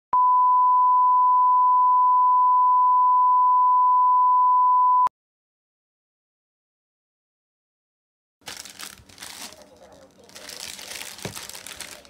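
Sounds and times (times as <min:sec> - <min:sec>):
electronic beep tone: 0:00.2 - 0:05.1.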